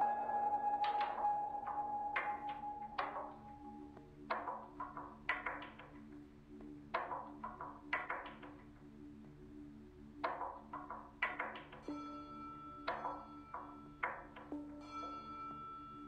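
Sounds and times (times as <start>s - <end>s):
low held tone: 0.0s - 4.0s.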